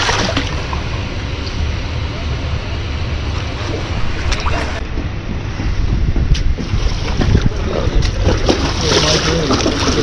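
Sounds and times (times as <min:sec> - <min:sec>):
shallow river water: 0:00.0 - 0:05.6, 0:06.3 - 0:10.0
wind rumbling on microphone: 0:00.0 - 0:10.0
fish splashing in water: 0:06.7 - 0:10.0.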